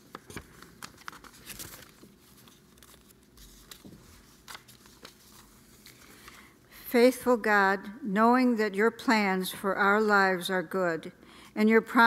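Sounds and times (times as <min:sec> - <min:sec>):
paper crinkling: 0:00.0 - 0:06.5.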